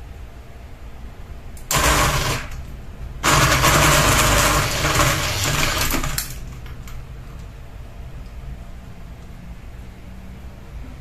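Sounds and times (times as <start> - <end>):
ceiling fan whirring: 0.0 - 11.0
ceiling fan rattling: 1.3 - 9.8.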